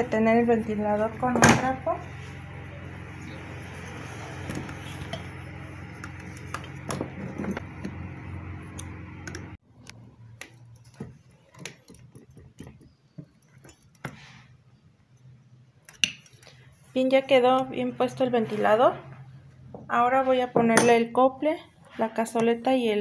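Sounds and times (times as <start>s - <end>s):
low hum: 0.0s - 10.8s.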